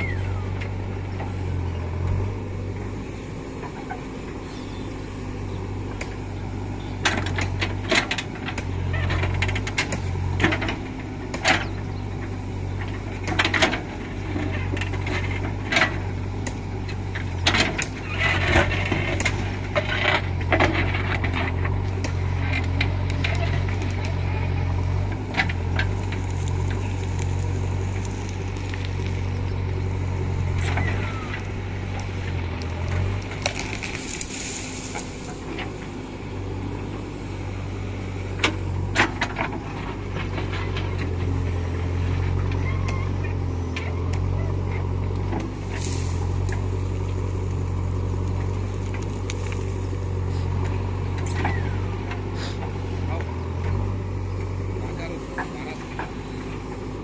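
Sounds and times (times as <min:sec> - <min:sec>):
diesel engine running: 0:00.0 - 0:57.0
rocks scraping against steel bucket: 0:30.5 - 0:35.9.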